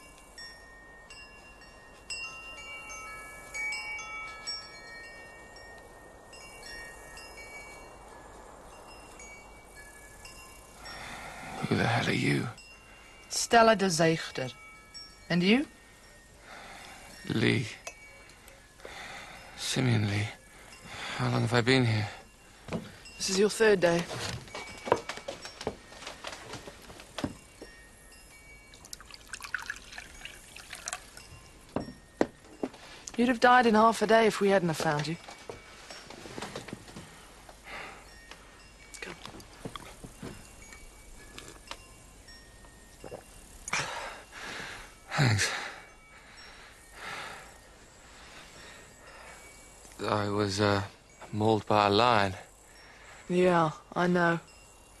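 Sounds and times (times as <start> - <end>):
wind chime ringing: 0.0 - 55.0
liquid pouring into vessel: 28.8 - 31.2.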